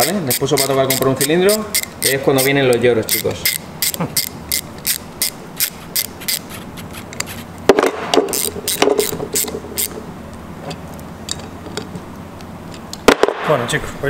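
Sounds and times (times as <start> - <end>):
ratchet wrench on metal: 0.0 - 7.4, 8.2 - 10.0.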